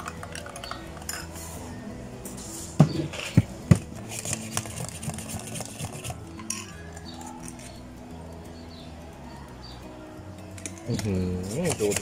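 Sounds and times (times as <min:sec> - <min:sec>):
metal spoon clinking glass cup: 0:00.0 - 0:01.4, 0:06.4 - 0:07.8.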